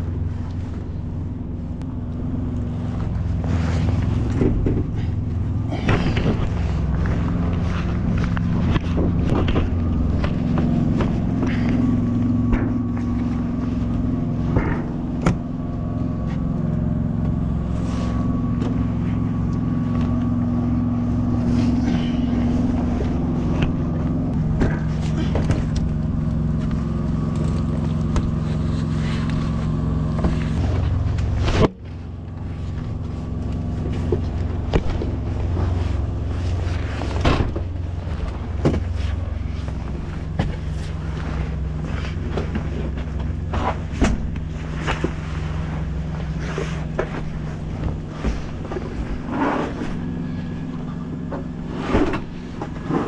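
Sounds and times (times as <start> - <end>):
diesel truck engine idling: 0.0 - 53.0
knocks and rattles in cab: 0.0 - 53.0.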